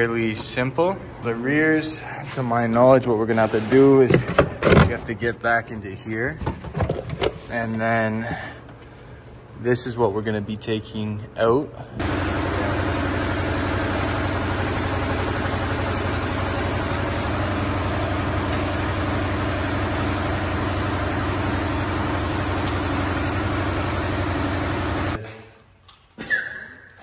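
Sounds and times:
machine humming: 12.0 - 25.2.

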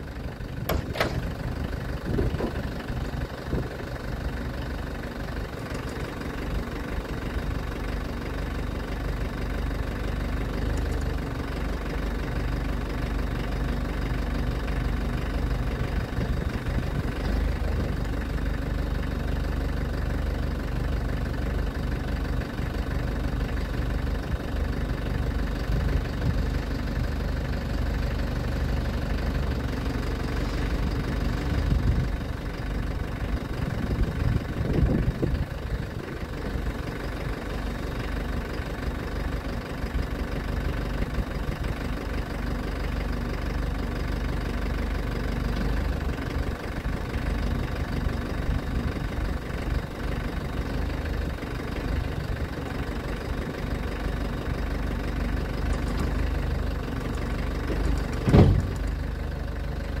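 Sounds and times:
engine idling with knocking: 0.0 - 60.0
sharp clunk: 0.6 - 1.4, 57.8 - 58.9.

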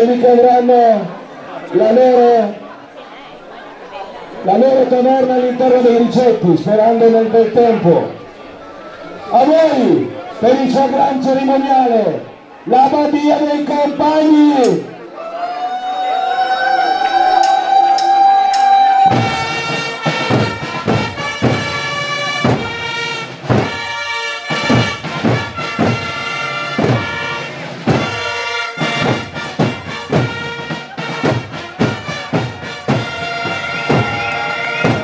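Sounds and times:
steady drum beat: 19.0 - 35.0
wind band playing a tune: 19.0 - 35.0.

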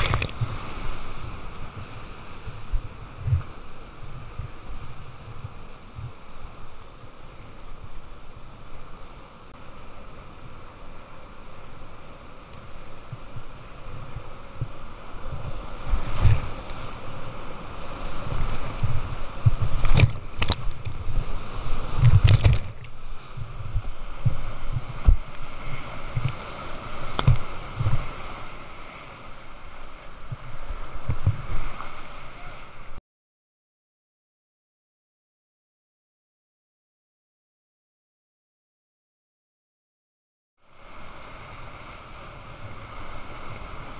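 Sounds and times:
water thumping camera housing: 0.0 - 0.4, 19.5 - 21.0, 22.0 - 23.0, 27.1 - 28.0
sharp water splashes: 0.0 - 0.8.

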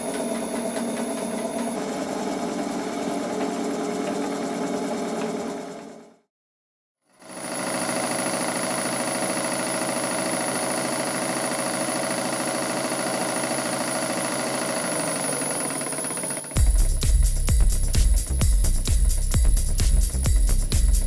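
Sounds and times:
model steam engines running: 0.0 - 6.0, 7.3 - 16.6.

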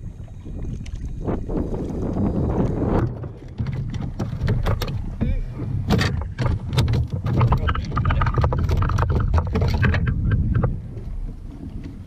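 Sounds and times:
low wind rumble: 0.0 - 12.0
fish and tackle knocking on kayak: 3.0 - 12.0.

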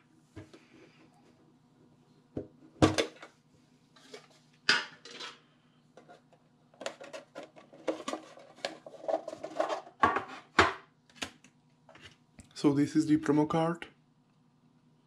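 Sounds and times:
clatter and handling noise: 2.4 - 12.3.

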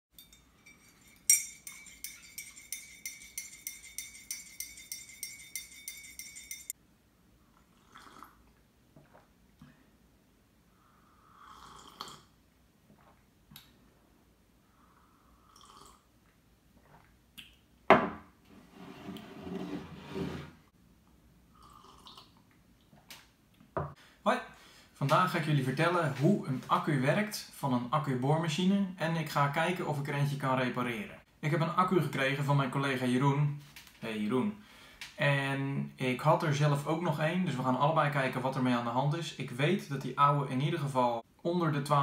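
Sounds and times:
teaspoon clinking in a mug: 0.2 - 6.7.

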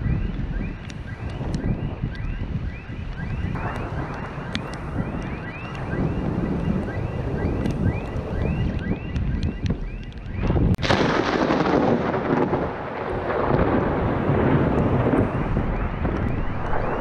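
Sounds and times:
distant thunder rumbling: 0.0 - 17.0
wind buffeting microphone: 0.0 - 17.0.

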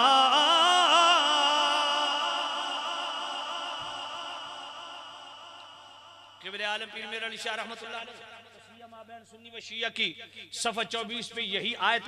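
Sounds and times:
man chanting melodically: 6.4 - 12.0.

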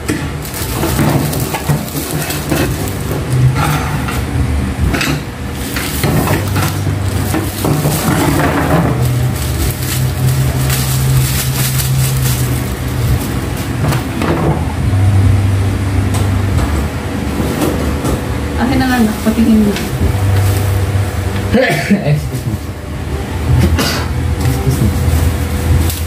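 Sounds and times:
steady low hum: 0.0 - 26.0
plastic packaging crinkling: 0.2 - 3.6, 5.4 - 14.2, 18.9 - 21.4, 24.4 - 26.0.

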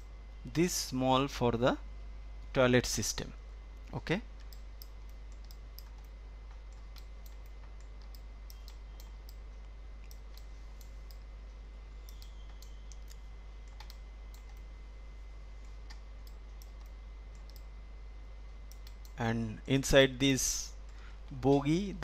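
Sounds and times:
steady low hum: 0.0 - 22.0
computer mouse clicking: 4.4 - 9.4, 10.0 - 11.2, 12.0 - 14.7, 15.6 - 17.7, 18.7 - 19.2.

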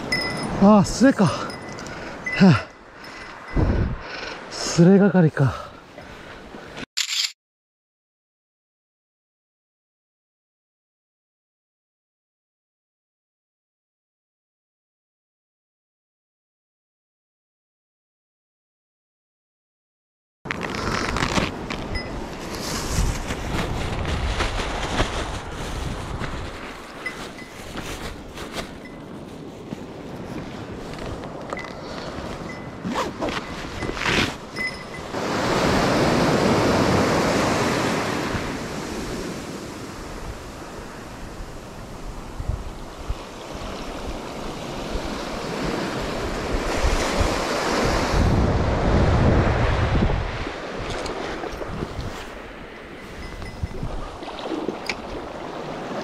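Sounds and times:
wind buffeting microphone: 3.2 - 4.2, 21.9 - 56.0
plastic bag rustling and crinkling: 20.5 - 31.5
small waves breaking on beach: 20.6 - 56.0.

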